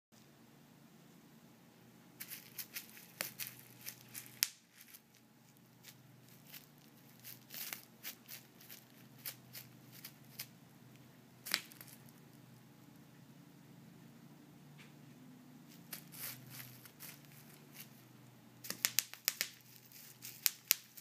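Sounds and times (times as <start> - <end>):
bubble wrap crackling: 2.2 - 10.5, 11.4 - 12.2, 15.7 - 18.0, 18.6 - 21.0.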